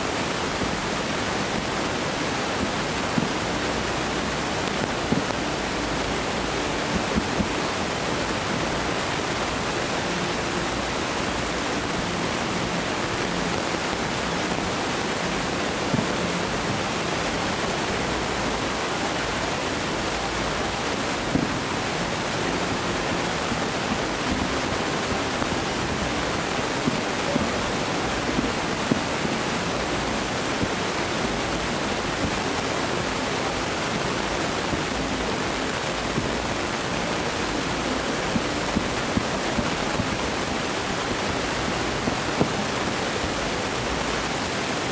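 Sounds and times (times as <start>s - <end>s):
steady rushing noise: 0.0s - 44.9s
distant fireworks bangs: 0.2s - 35.0s.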